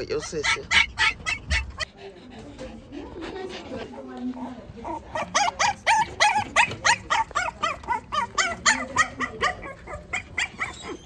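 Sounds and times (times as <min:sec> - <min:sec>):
small dog yapping: 0:04.8 - 0:11.0.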